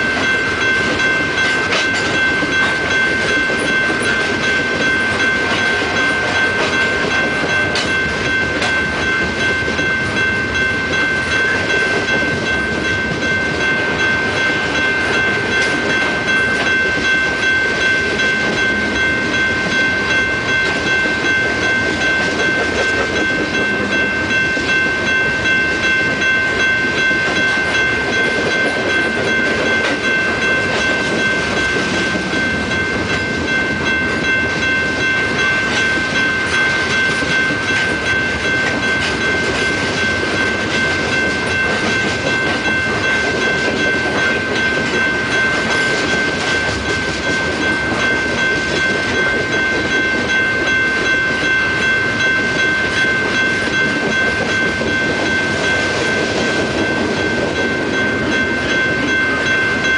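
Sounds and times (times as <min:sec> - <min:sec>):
faint rail clacks: 0:00.0 - 0:59.9
train wheels rumbling on rail: 0:00.0 - 0:59.9.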